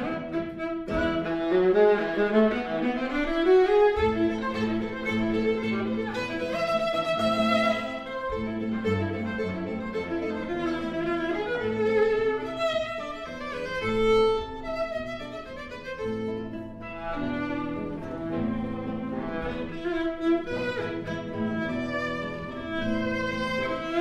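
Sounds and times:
plucked classical guitar: 0:00.0 - 0:24.0
violin melody: 0:00.0 - 0:24.0.

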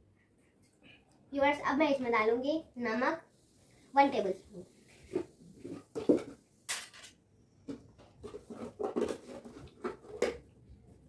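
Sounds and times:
spoon scraping containers: 0:07.7 - 0:10.5.

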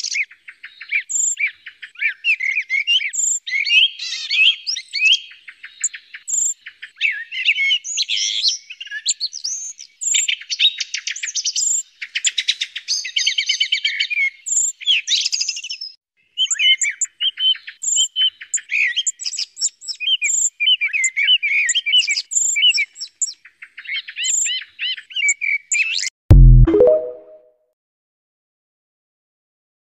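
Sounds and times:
loud low thud: 0:26.3 - 0:26.7.

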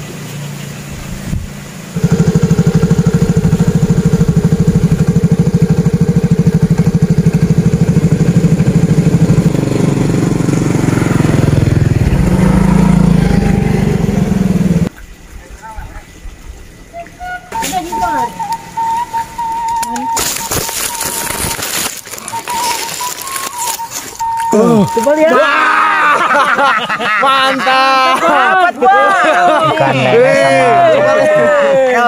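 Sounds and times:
motor engine running: 0:00.0 - 0:14.9, 0:17.6 - 0:25.2.

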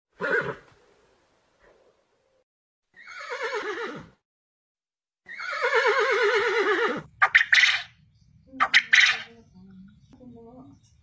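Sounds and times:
pony whinnying: 0:03.0 - 0:04.2, 0:05.3 - 0:07.9
quail calls: 0:07.0 - 0:07.9, 0:08.6 - 0:09.4.

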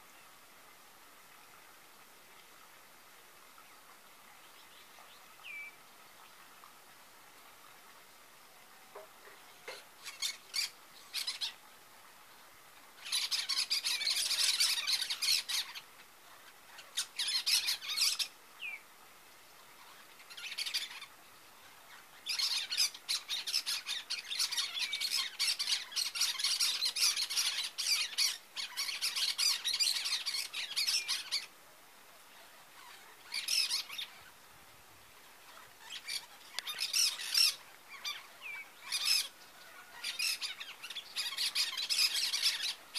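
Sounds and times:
parakeets squawking: 0:35.5 - 0:39.3, 0:40.0 - 0:42.8.

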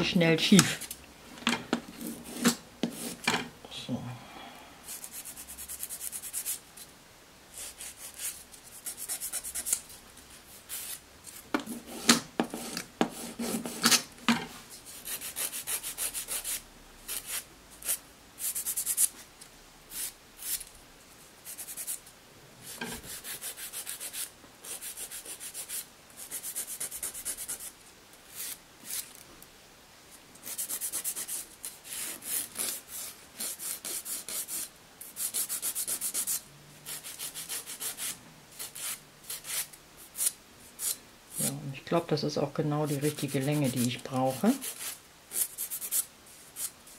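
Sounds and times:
nail file rasping on nails: 0:04.9 - 0:06.6, 0:07.5 - 0:09.8, 0:15.0 - 0:19.1, 0:21.4 - 0:22.0, 0:22.6 - 0:27.7, 0:30.4 - 0:41.6, 0:42.8 - 0:46.7.

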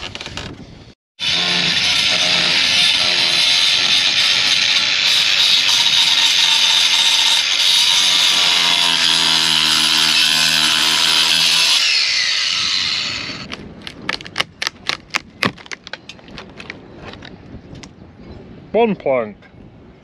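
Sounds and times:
angle grinder on wood: 0:01.2 - 0:13.5
wood plank cracking: 0:13.3 - 0:16.8.

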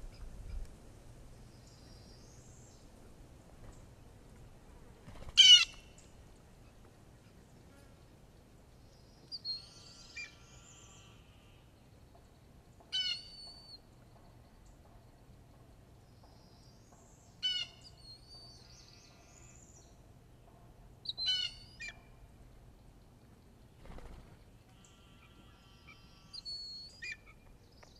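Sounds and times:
small birds singing softly: 0:00.0 - 0:27.9
blue jay calling: 0:05.4 - 0:07.4, 0:09.3 - 0:11.6, 0:12.9 - 0:13.8, 0:17.4 - 0:19.5, 0:21.0 - 0:22.1, 0:24.8 - 0:27.4.

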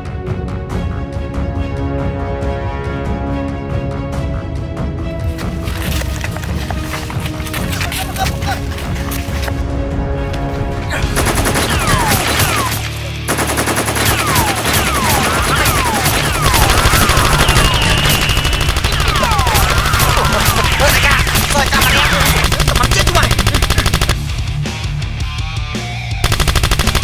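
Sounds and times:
background music: 0:00.0 - 0:27.0
rapid machine-gun fire: 0:11.2 - 0:24.2, 0:26.2 - 0:27.0.

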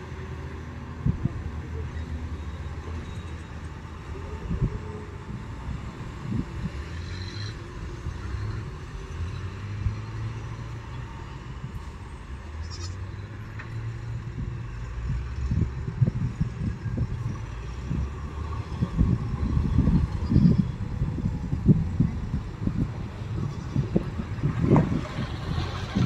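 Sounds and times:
diesel truck engine rumbling: 0:00.0 - 0:26.0.

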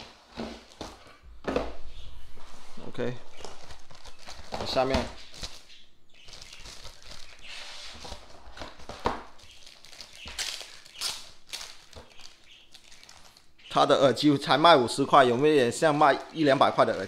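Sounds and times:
plastic bag crinkling: 0:03.2 - 0:13.6, 0:15.7 - 0:17.0.

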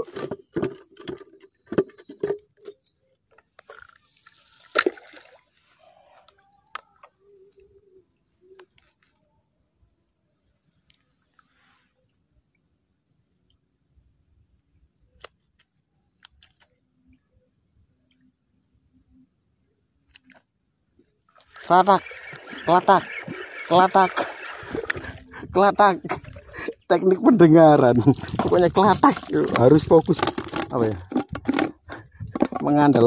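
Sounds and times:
handling clicks and knocks: 0:00.0 - 0:03.9, 0:28.1 - 0:33.0
quiet outdoor background: 0:00.0 - 0:33.0
faint high chirping: 0:05.7 - 0:15.2.

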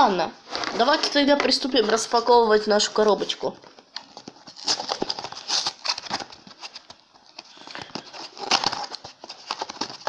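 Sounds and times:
cardboard box rustling and crackling: 0:00.5 - 0:10.0.

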